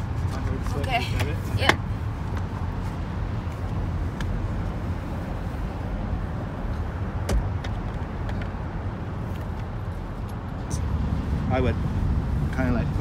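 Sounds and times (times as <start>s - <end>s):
steady low rumble: 0.0s - 13.0s
car seat clicks and thump: 7.2s - 8.5s.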